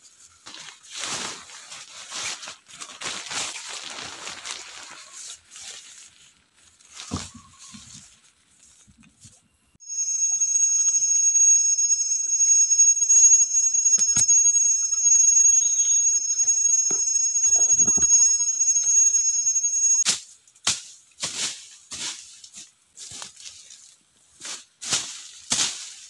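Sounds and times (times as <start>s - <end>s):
rustles of dry leaves: 0.0s - 9.0s, 20.1s - 26.0s
cicada whine: 9.8s - 20.0s.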